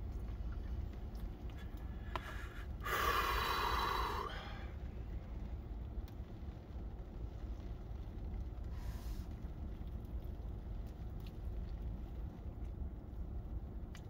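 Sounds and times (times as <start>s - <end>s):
steady low rumble: 0.0s - 14.0s
person exhaling breathily: 2.2s - 4.7s.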